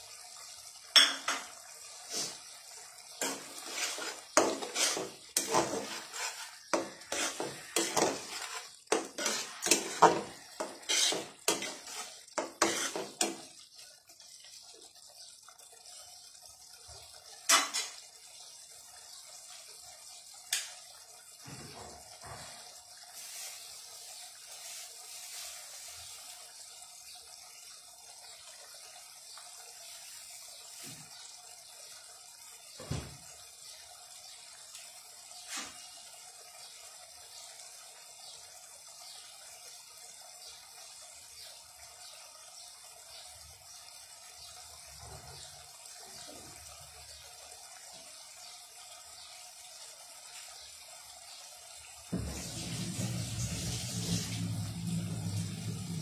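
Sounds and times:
spatula scraping metal pan: 3.2 - 13.5.

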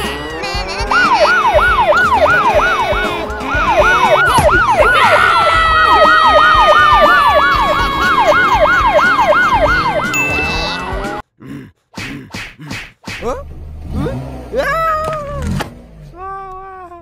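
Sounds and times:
rapid warbling siren: 0.8 - 11.2.

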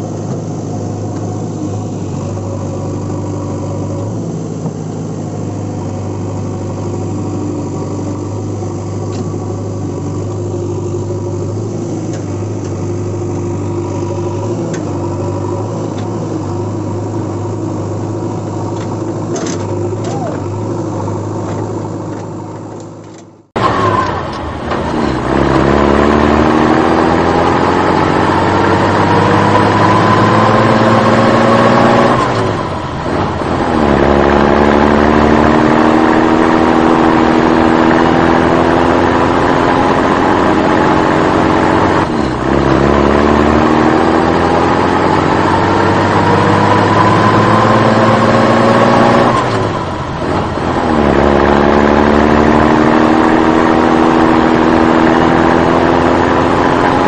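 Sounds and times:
motor revving up: 23.6 - 57.0.

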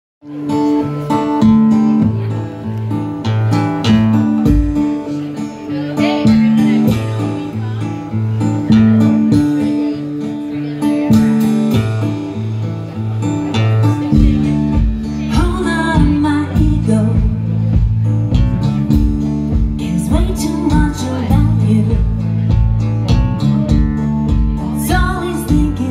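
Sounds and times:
bass guitar: 0.2 - 25.9
strummed acoustic guitar: 0.2 - 25.9
person singing: 14.1 - 17.8, 19.8 - 22.5, 24.6 - 25.9.

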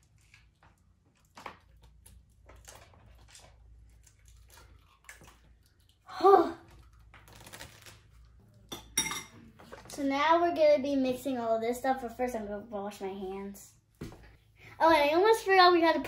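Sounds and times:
child exclaiming: 6.1 - 6.7.

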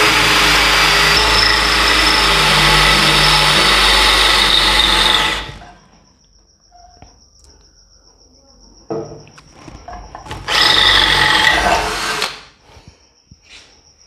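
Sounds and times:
drill motor winding down: 0.0 - 5.6, 10.4 - 12.5
drill motor whine and grinding: 0.0 - 5.7, 10.2 - 12.5.

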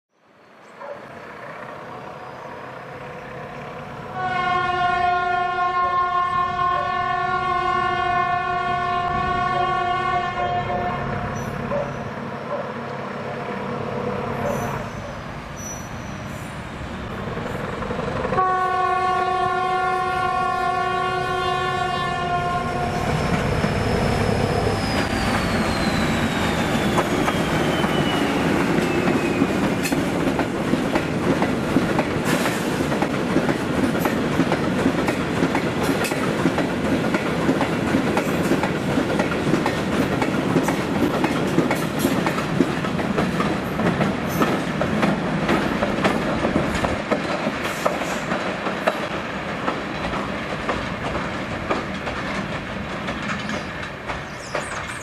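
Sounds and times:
diesel locomotive engine: 0.3 - 55.0
locomotive horn blasts: 4.1 - 11.3, 18.3 - 23.1
rolling train wagons: 11.0 - 55.0
falling whine: 22.8 - 29.6.

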